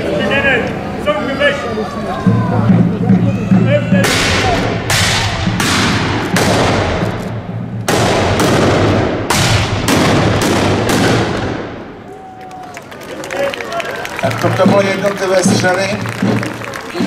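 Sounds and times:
musket shots echoing: 4.1 - 7.2, 7.8 - 11.9.

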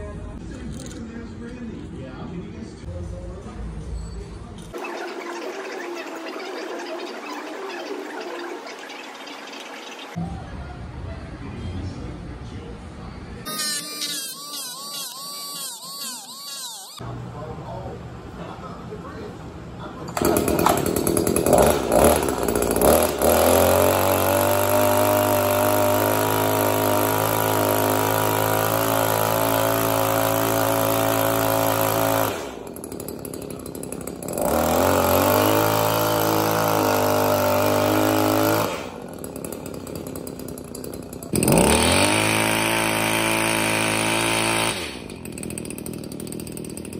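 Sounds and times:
hedge trimmer engine running: 13.5 - 17.0, 20.1 - 46.9.

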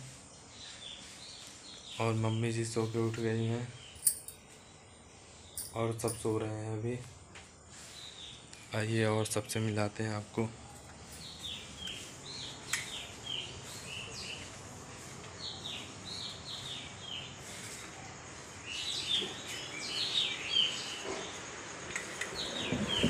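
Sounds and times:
birds chirping: 7.8 - 17.8, 18.6 - 23.0.

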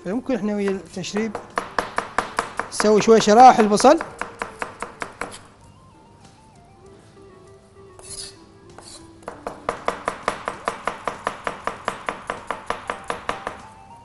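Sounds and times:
soft background music: 0.0 - 14.0
knife slicing onion on board: 8.0 - 13.4.

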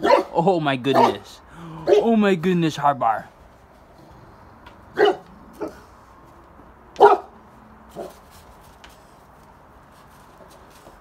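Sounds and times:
dog barking: 0.0 - 2.1, 4.9 - 5.8, 7.0 - 7.4, 8.0 - 8.2.

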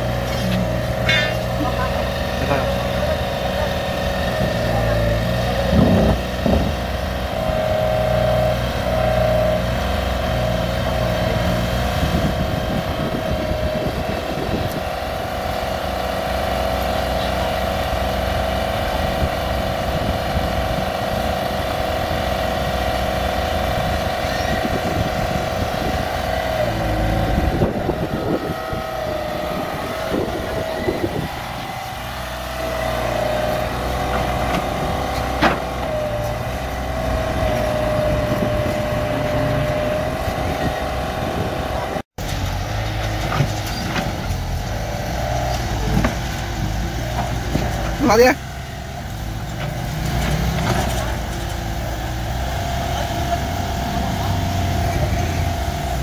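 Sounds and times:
excavator diesel engine: 0.0 - 56.0
hydraulic whine: 0.0 - 56.0.

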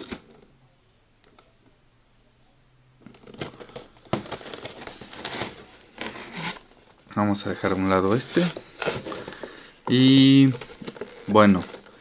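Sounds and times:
plastic packaging crinkling: 3.0 - 12.0.

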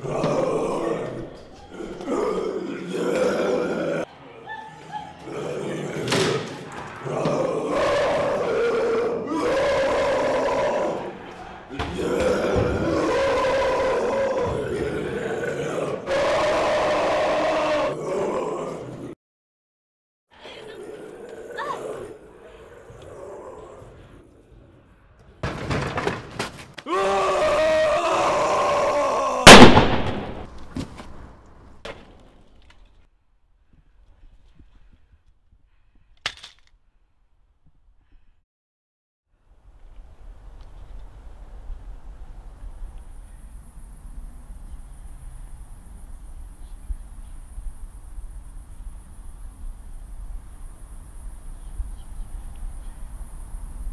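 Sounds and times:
man screaming: 11.9 - 18.8, 26.9 - 29.8
loud sudden bang: 29.4 - 30.5
insects chirring: 42.3 - 53.9.

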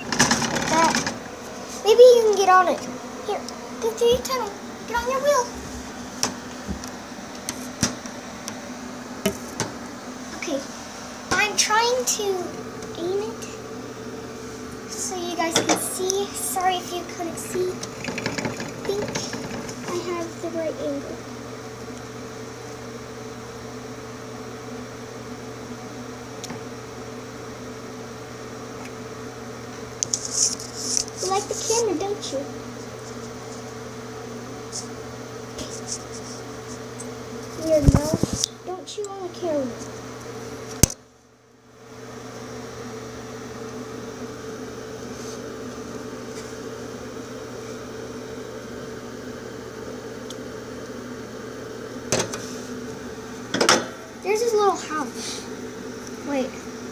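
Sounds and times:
fan hum with hiss: 0.0 - 56.9.

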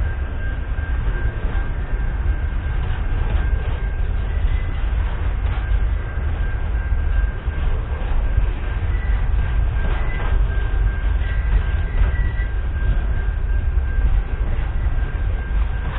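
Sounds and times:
train wheels rumbling on rail: 0.0 - 15.9.

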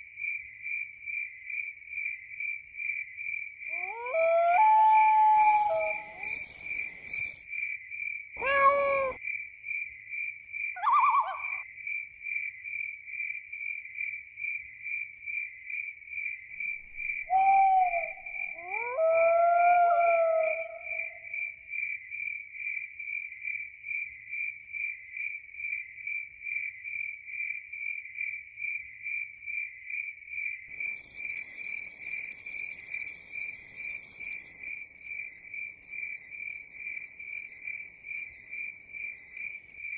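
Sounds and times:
crickets chirping: 0.2 - 39.9
short animal calls: 8.4 - 9.2, 10.8 - 11.6.

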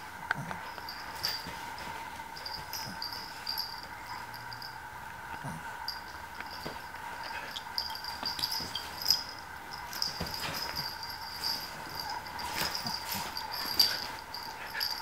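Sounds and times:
animals rustling bedding: 0.0 - 4.4, 6.5 - 15.0
faint high-pitched whine: 0.0 - 15.0
soft thumps: 9.9 - 14.2.

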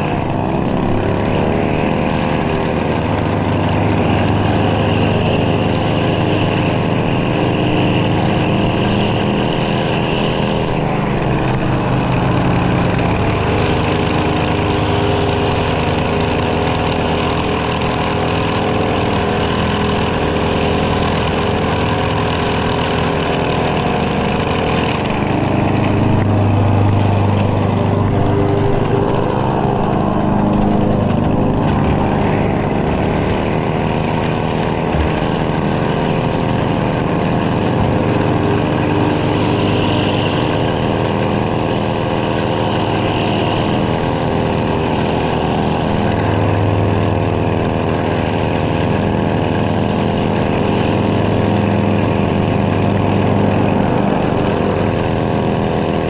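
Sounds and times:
lawn mower engine running: 0.0 - 56.0.

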